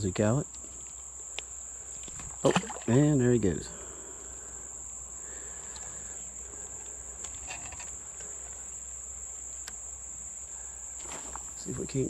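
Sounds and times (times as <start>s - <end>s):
insects buzzing: 0.0s - 12.0s
faint clicks: 0.5s - 2.4s, 5.6s - 6.0s.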